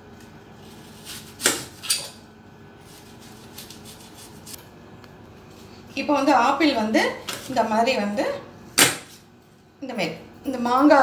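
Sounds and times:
knife cutting an apple: 0.6s - 2.2s, 2.8s - 4.6s.

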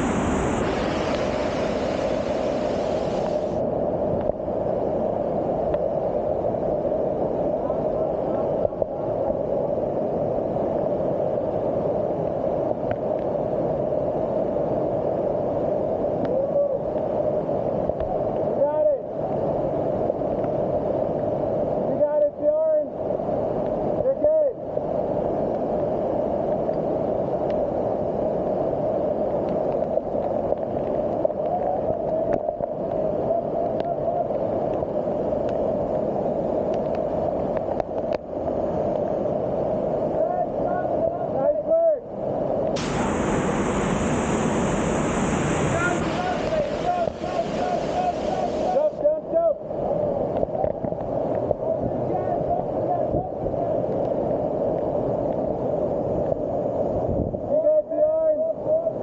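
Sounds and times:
waterfall rushing: 0.0s - 3.6s, 42.8s - 50.2s.

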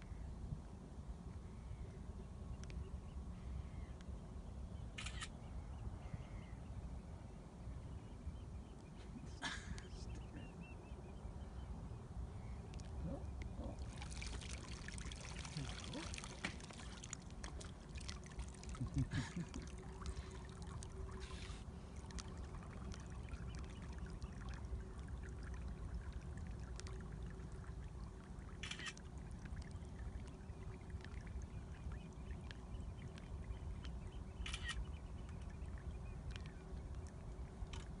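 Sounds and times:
low steady rumble: 0.0s - 38.0s
water trickling and lapping: 7.8s - 38.0s
small clicks: 37.7s - 37.9s.

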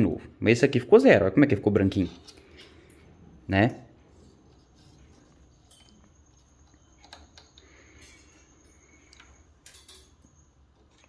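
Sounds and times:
light rubbing of small parts: 1.6s - 11.0s
small parts clicking: 5.3s - 11.0s.

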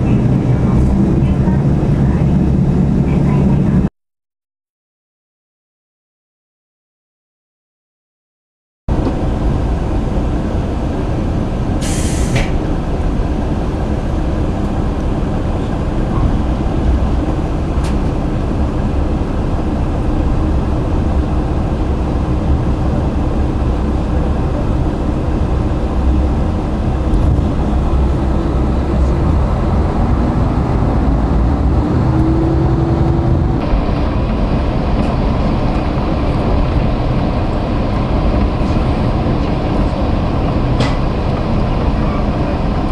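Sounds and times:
train engine and wheels rumbling: 0.0s - 3.9s, 8.9s - 42.9s
short hiss: 11.8s - 12.5s.

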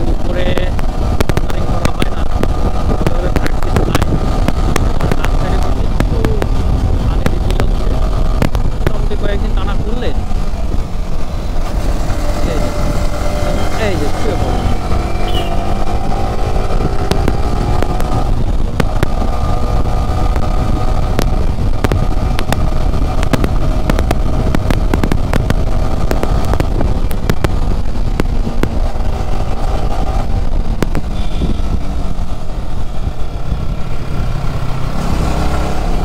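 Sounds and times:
motorcycle engine hum: 0.0s - 36.0s
wind rumble on microphone: 0.0s - 36.0s.

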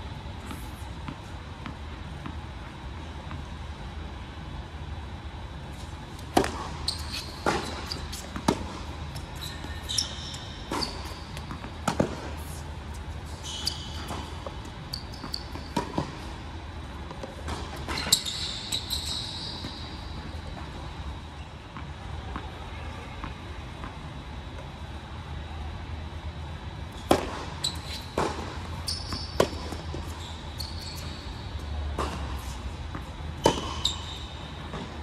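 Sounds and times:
racket striking ball: 6.3s - 6.8s, 11.4s - 12.4s, 27.1s - 27.6s, 33.4s - 33.8s
sneaker squeaks: 6.3s - 16.4s, 17.1s - 21.2s, 27.0s - 35.0s.

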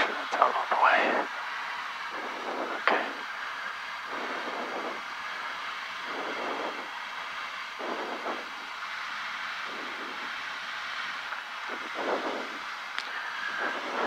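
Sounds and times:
cockpit hiss: 0.0s - 14.0s
pilot breathing into microphone: 11.7s - 14.0s.

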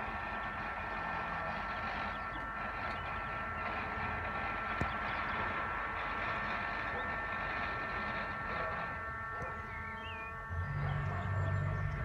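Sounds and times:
distant machinery whining drone: 0.0s - 12.0s
low engine drone: 0.0s - 12.0s
bird chirping: 9.4s - 12.0s.

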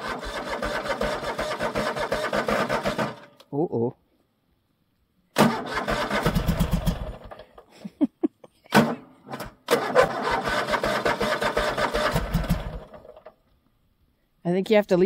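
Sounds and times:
engine starter cranking: 0.0s - 3.4s, 5.4s - 7.7s, 8.7s - 13.4s.

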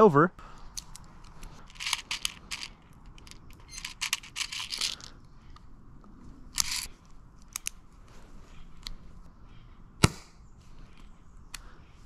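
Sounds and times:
small clicks and rattles: 0.8s - 5.1s.

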